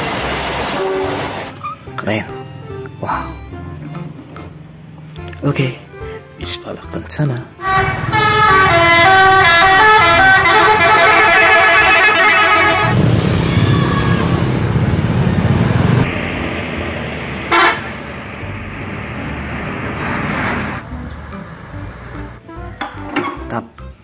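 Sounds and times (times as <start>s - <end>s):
bus engine passing: 0.0s - 22.8s
musical bus horn tune: 0.6s - 13.0s, 17.4s - 18.9s, 20.9s - 23.4s
short horn blast: 0.7s - 1.8s, 7.6s - 13.0s, 17.5s - 18.0s.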